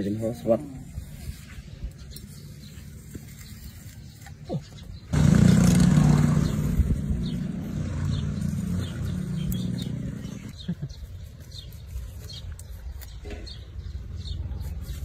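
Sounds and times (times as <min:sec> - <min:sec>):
outdoor background: 0:00.0 - 0:15.0
vehicle engine humming: 0:05.1 - 0:10.6.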